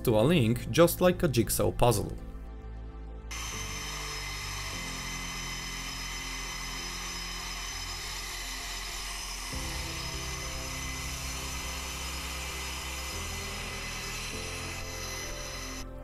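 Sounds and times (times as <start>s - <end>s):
jet engine turbine whine: 3.3s - 15.8s.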